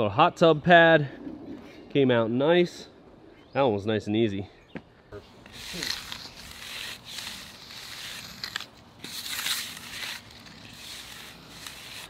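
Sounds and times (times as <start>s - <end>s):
trowel scraping concrete: 5.4s - 12.0s.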